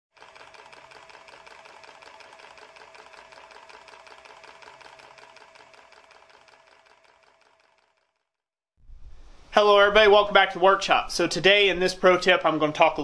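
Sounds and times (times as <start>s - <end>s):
rapid mechanical clicking: 0.2s - 8.3s.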